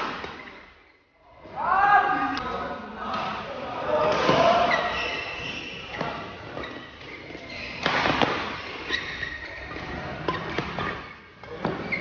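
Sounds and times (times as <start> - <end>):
racket hitting shuttlecock: 0.0 - 0.6, 7.8 - 9.0
shoes squeaking on court floor: 0.0 - 1.1, 4.0 - 12.0.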